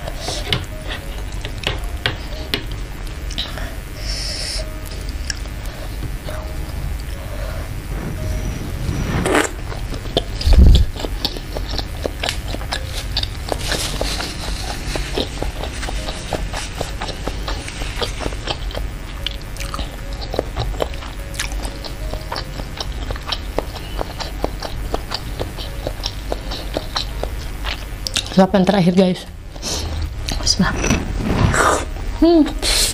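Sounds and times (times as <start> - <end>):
biting and chewing fried tofu: 10.1 - 28.4.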